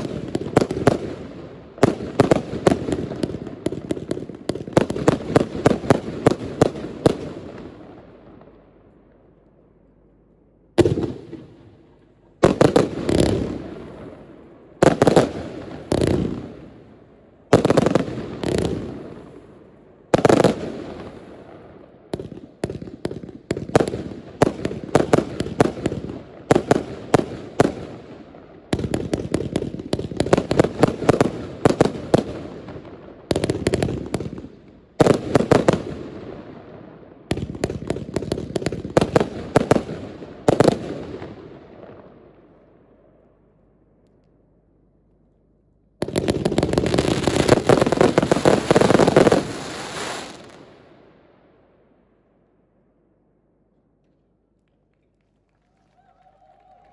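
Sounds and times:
fireworks shots and bangs: 0.0 - 8.0, 10.8 - 11.7, 12.4 - 14.2, 14.8 - 16.8, 17.5 - 19.4, 20.1 - 42.1.

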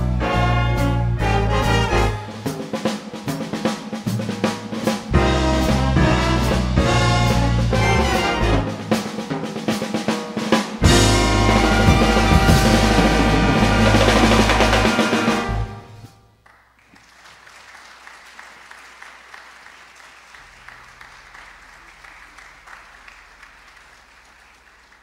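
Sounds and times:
jazz big band chord: 0.0 - 16.2
audience applauding: 16.4 - 25.0.

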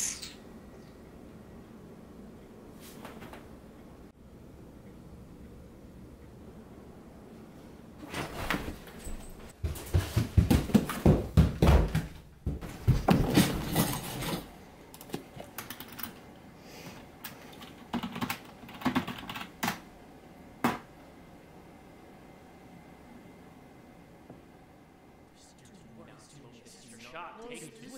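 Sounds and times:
fast typing on a keyboard: 15.0 - 16.2, 17.5 - 19.8.

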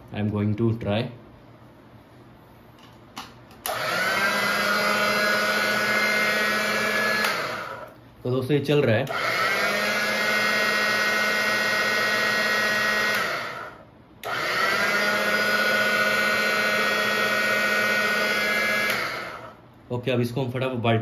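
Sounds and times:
washing machine motor hum and whine: 3.6 - 8.0, 9.0 - 19.8.

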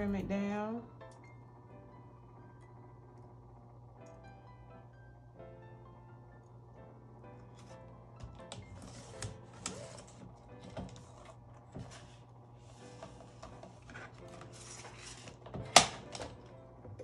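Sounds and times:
plastic rustling and scraping: 8.4 - 16.4.

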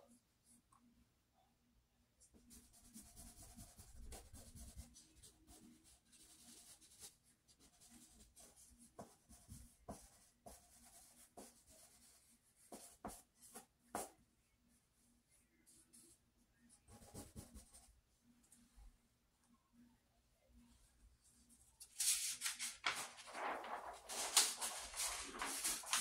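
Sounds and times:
pencil scratching on paper: 2.4 - 14.1, 16.9 - 17.9.

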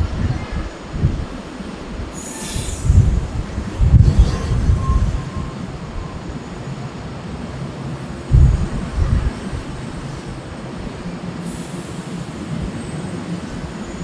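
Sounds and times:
distant jet engines rumbling: 0.0 - 14.0
brief high hiss: 2.2 - 3.2
heavy low thumps: 2.9 - 5.3.

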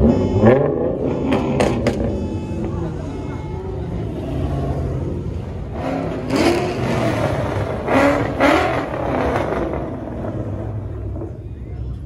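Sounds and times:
car engine revving hard: 5.6 - 10.7.

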